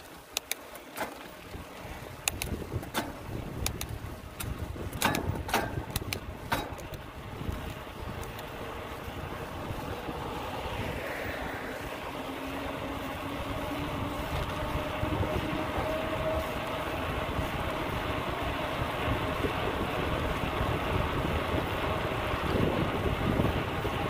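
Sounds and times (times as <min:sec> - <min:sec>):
road noise: 0:00.0 - 0:24.0
wind rushing over microphone: 0:01.4 - 0:24.0.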